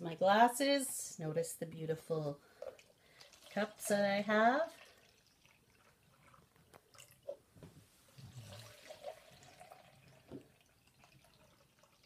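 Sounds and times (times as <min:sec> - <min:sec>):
milk trickling into cups: 0:02.4 - 0:07.4, 0:08.2 - 0:12.0
small drips and clicks: 0:02.5 - 0:07.5, 0:08.2 - 0:12.0.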